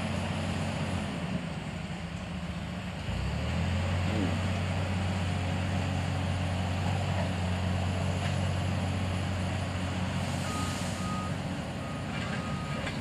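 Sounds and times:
diesel engine humming: 0.0 - 13.0.

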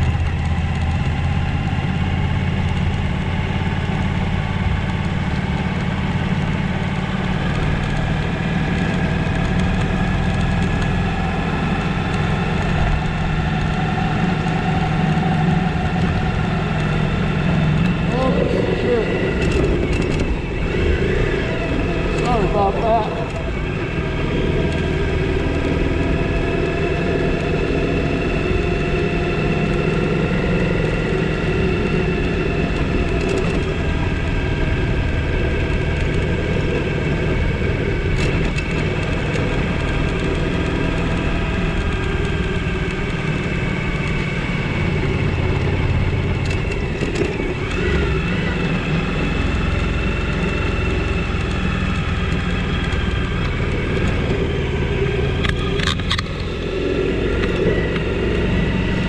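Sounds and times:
motorcycle engine running: 0.0 - 59.0
wind and road noise: 0.0 - 59.0
sharp ticks: 4.8 - 23.7, 35.5 - 59.0.

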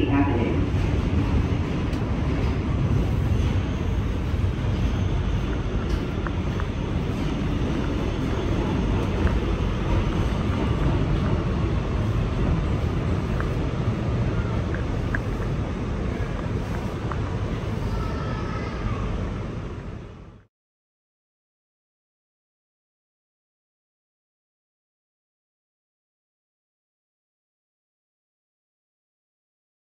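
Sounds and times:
subway car rumble and hum: 0.0 - 20.5.

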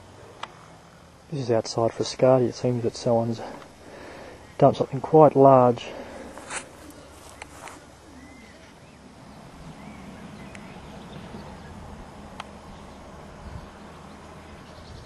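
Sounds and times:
faint bird chirps: 6.8 - 11.9.

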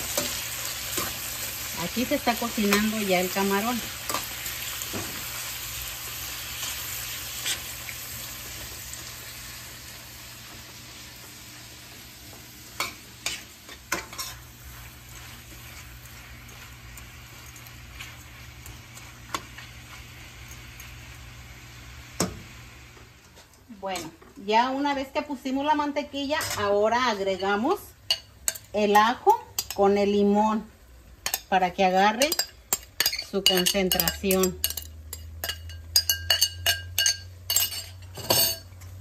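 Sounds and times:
shrimp sizzling in butter: 0.0 - 23.3
metal spoon clinking on pan: 28.1 - 29.8, 31.2 - 38.8.

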